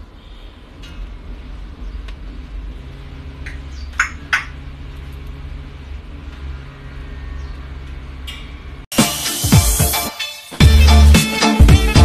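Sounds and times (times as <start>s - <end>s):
cockatoo beak clicks: 3.4s - 4.5s.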